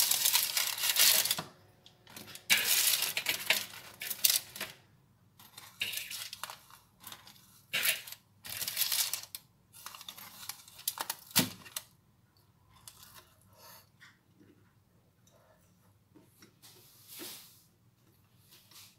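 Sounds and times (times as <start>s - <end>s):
baking parchment rustling and crinkling: 0.0s - 4.8s, 5.4s - 12.0s.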